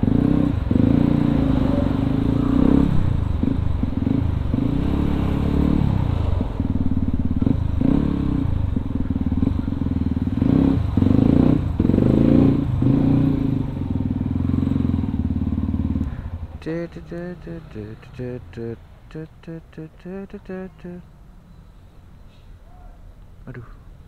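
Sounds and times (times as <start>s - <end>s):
motorcycle engine revving: 0.0s - 18.7s.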